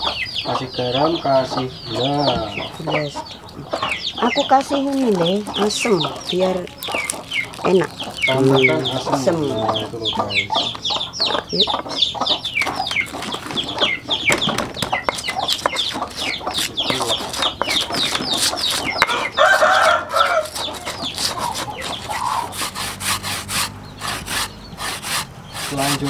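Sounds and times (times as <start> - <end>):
chickens clucking: 0.0 - 26.0
pestle grinding in stone mortar: 15.0 - 26.0
coconut grating rasp: 15.1 - 26.0.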